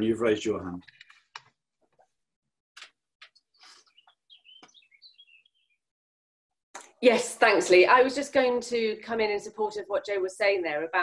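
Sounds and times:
faint bird chirping: 3.4s - 5.9s.

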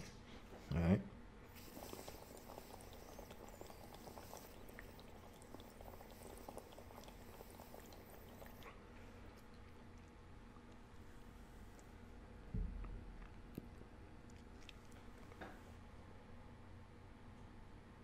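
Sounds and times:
water bubbling in vaporizer: 1.5s - 10.1s.

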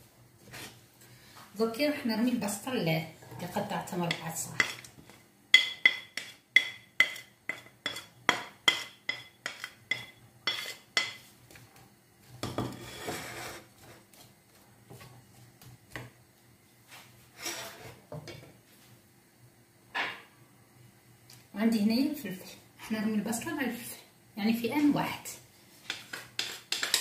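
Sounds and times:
faint kitchen sounds: 0.0s - 27.0s
wooden spatula knocking bowl: 5.6s - 11.2s, 25.9s - 27.0s.

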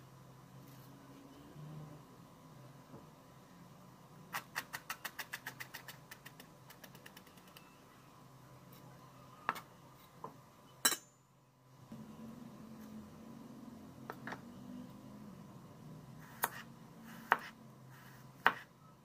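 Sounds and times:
knife chopping on plastic board: 17.2s - 17.6s, 18.4s - 18.7s.

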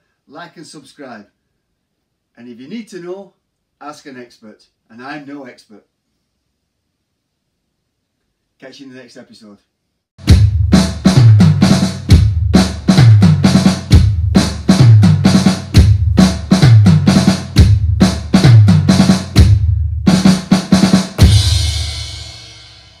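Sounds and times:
drum-led music: 10.2s - 23.0s.

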